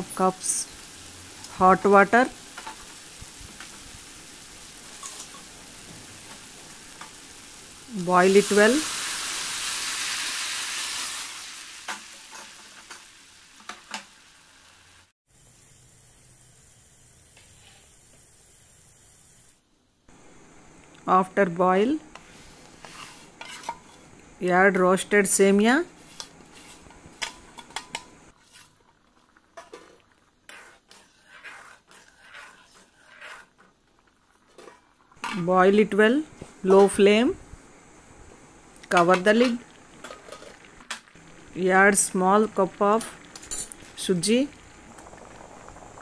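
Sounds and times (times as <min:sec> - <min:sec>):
water sizzling in hot oil: 0:00.0 - 0:19.6, 0:22.2 - 0:24.1, 0:25.7 - 0:35.4, 0:36.6 - 0:46.0
spatula scraping in pot: 0:22.2 - 0:24.1, 0:26.0 - 0:33.8
liquid bubbling: 0:39.6 - 0:41.6, 0:42.5 - 0:46.0.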